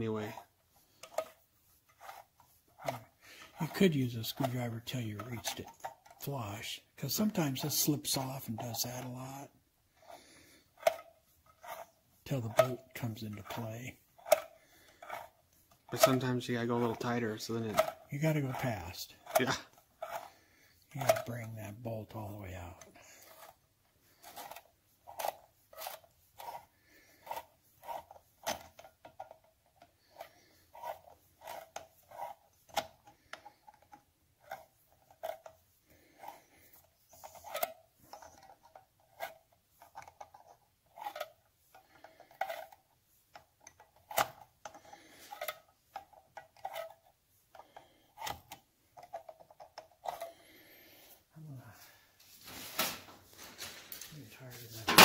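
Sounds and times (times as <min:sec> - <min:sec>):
metal nut clicking and scraping: 0:00.3 - 0:04.5, 0:10.0 - 0:21.5, 0:22.8 - 0:51.1.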